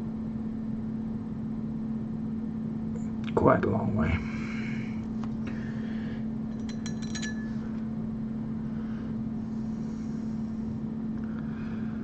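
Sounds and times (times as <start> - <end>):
low electrical hum: 0.0 - 12.0
light glassy clinks: 6.5 - 7.6.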